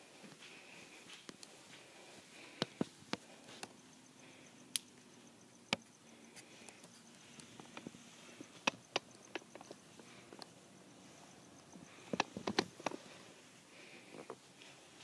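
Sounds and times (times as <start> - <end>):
faint steady hum: 0.0 - 15.0
sharp clicks and taps: 5.7 - 5.9, 6.6 - 10.5, 12.1 - 13.0.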